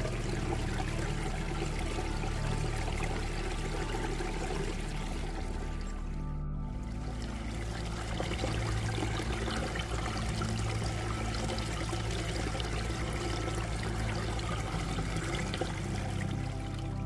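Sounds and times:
water dripping: 0.0s - 17.0s
water trickling down a stream: 0.0s - 17.0s.

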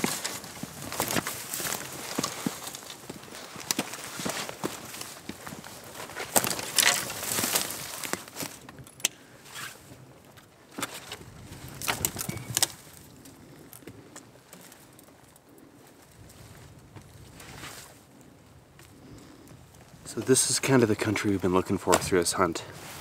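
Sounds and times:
footsteps crunching on dry ground: 0.0s - 8.8s
gear clinking and rattling: 0.0s - 9.2s, 10.8s - 15.5s.

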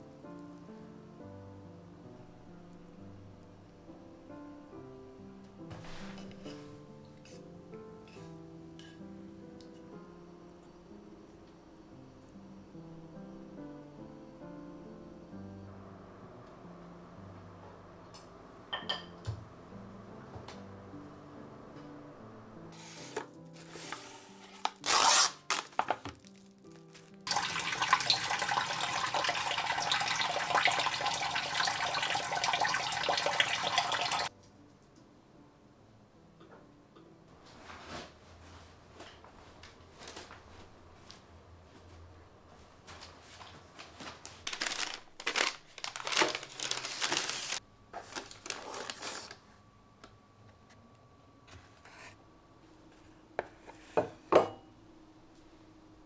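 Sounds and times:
water tap running into sink: 27.3s - 34.3s.

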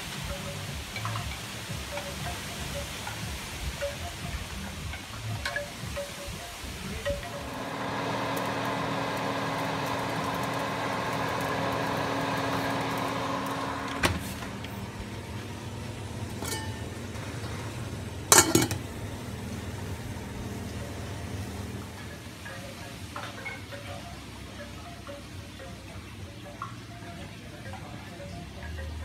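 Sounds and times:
appliance motor humming: 6.8s - 22.4s.

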